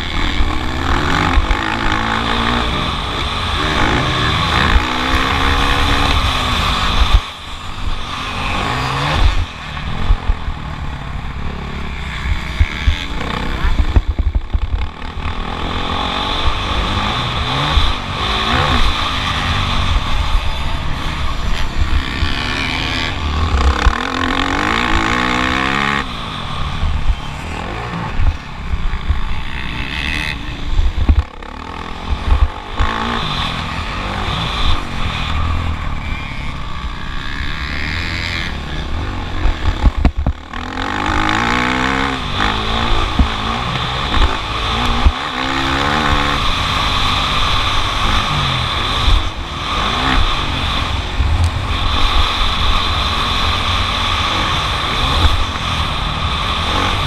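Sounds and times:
wind rumble on microphone: 0:00.0 - 0:26.0, 0:26.6 - 0:36.2
motocross bike engine revving: 0:00.0 - 0:57.0.

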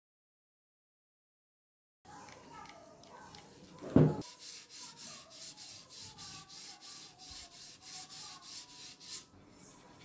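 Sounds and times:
wet sandpaper rubbing metal: 0:04.2 - 0:09.3.

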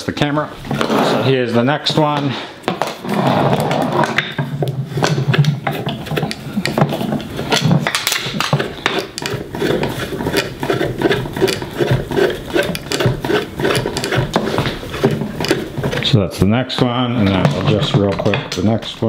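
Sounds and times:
metal pole screwing scrapes and clicks: 0:03.0 - 0:16.2, 0:16.8 - 0:18.8.

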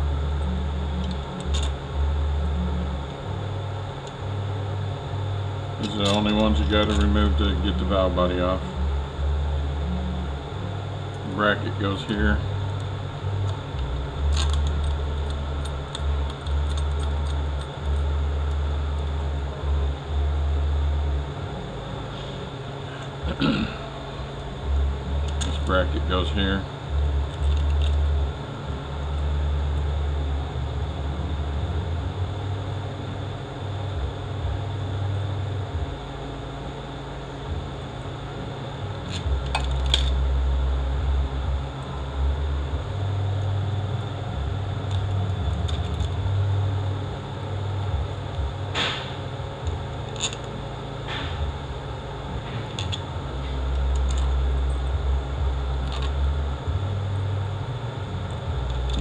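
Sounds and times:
low uneven rumble: 0:00.0 - 0:59.0
metallic clinks of small bolts: 0:01.0 - 0:01.7, 0:05.8 - 0:07.2, 0:14.3 - 0:18.1, 0:39.1 - 0:40.2, 0:50.1 - 0:50.5, 0:52.6 - 0:53.0.

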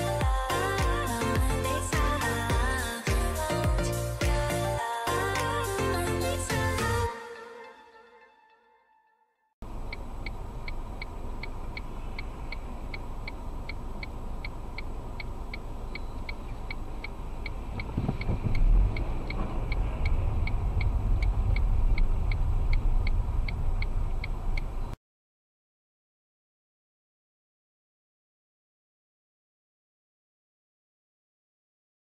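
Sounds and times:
engine and road rumble: 0:09.6 - 0:25.0
turn signal clicking: 0:09.7 - 0:24.9.

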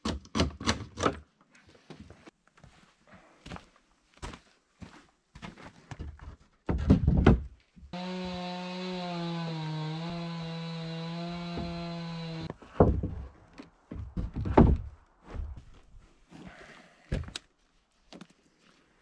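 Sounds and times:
cordless drill running: 0:08.0 - 0:12.5.

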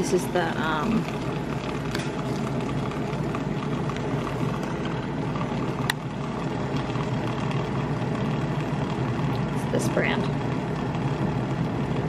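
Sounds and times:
milk frother running: 0:00.0 - 0:12.0.

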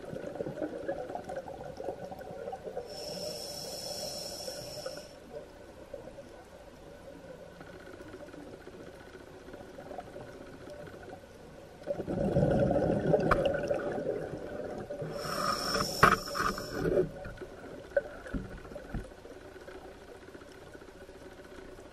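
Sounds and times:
faint ticks: 0:00.0 - 0:12.0, 0:14.6 - 0:21.9
regulator inhale hiss: 0:02.8 - 0:05.4, 0:15.0 - 0:17.2
gurgling rush of exhaled bubbles: 0:11.9 - 0:16.0.

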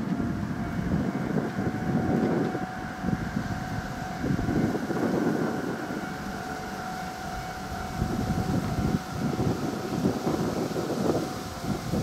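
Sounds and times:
faint steady high hum: 0:00.0 - 0:12.0
wind buffeting microphone: 0:00.0 - 0:12.0.

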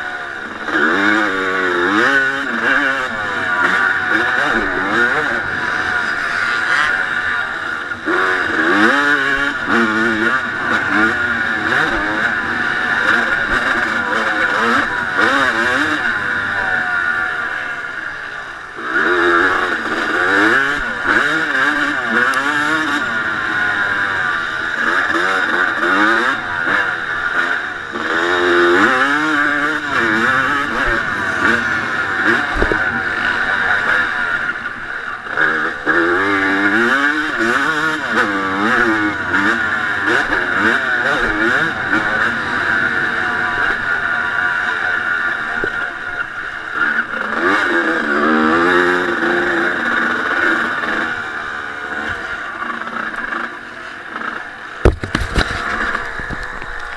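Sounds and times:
two-stroke motorcycle engine revving: 0:00.0 - 0:56.9.

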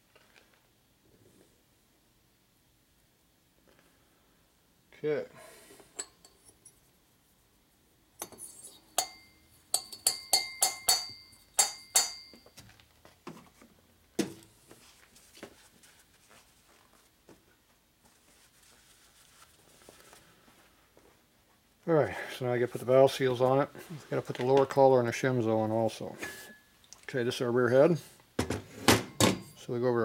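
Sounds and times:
sharp metallic clinks: 0:08.2 - 0:12.6.

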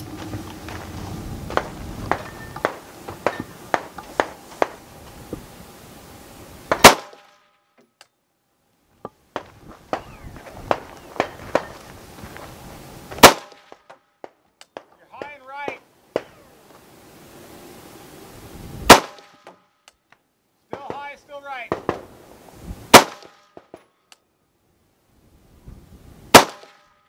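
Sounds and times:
sharp gunshots: 0:06.7 - 0:07.4, 0:13.2 - 0:13.8, 0:18.9 - 0:19.6, 0:22.9 - 0:23.7, 0:26.3 - 0:26.9
very loud gunshot: 0:06.7 - 0:07.4, 0:13.2 - 0:13.7, 0:18.9 - 0:19.5, 0:22.9 - 0:23.7, 0:26.3 - 0:26.8.

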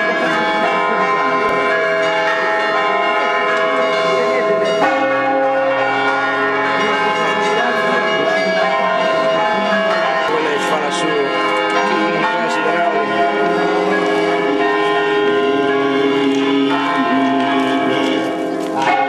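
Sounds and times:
church bells pealing: 0:00.0 - 0:19.0
deeper bell: 0:00.0 - 0:19.0.

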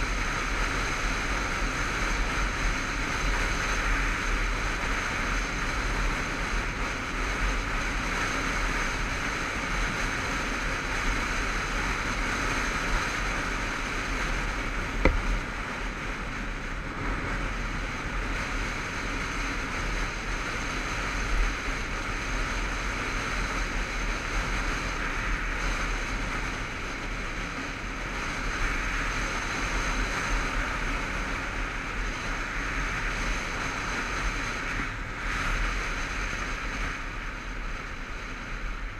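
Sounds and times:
motorcycle engine and tyres: 0:00.0 - 0:38.9
wind rush over camera: 0:00.0 - 0:38.9
brief knock: 0:15.0 - 0:15.4.

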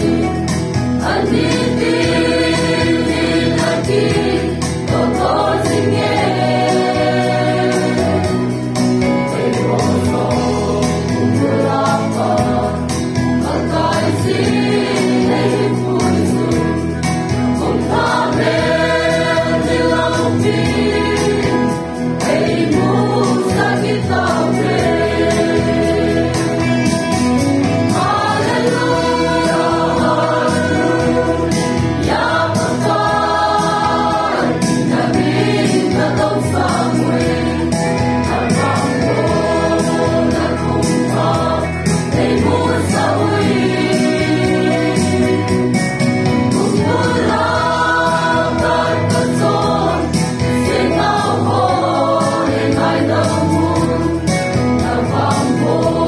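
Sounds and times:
church choir singing a hymn: 0:00.0 - 0:56.0.

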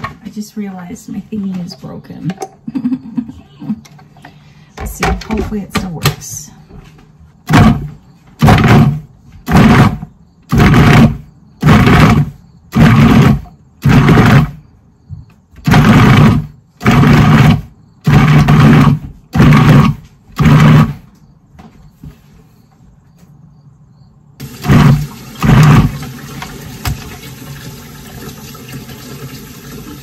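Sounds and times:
food processor pulsing: 0:07.5 - 0:14.6, 0:15.6 - 0:21.0, 0:24.4 - 0:30.0.

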